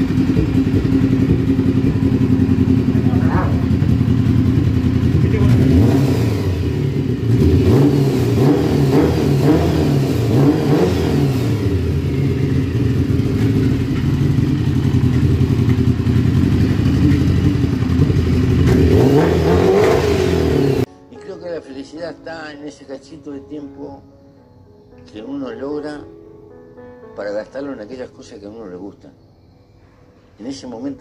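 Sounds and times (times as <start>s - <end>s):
motorcycle engine revving: 0.0s - 20.9s.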